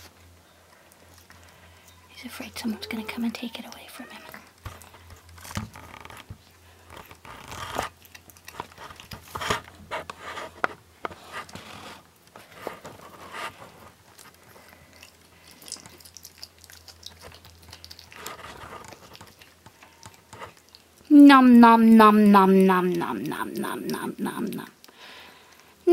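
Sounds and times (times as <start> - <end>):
animal crunching on bone: 2.6 - 21.1.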